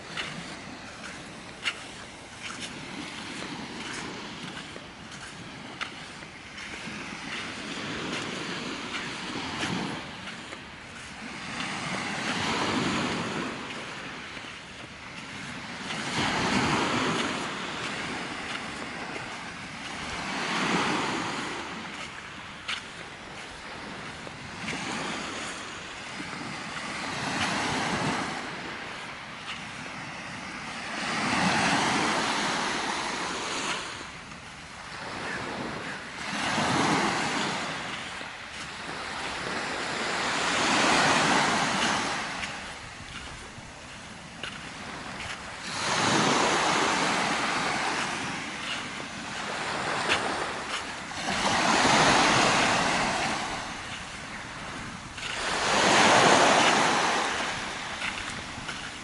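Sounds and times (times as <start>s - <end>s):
small waves breaking on beach: 0.0s - 59.0s.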